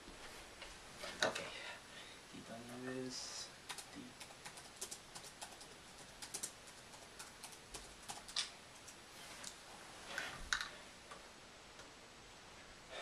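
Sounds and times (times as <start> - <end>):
laptop keyboard typing: 3.6 - 9.0.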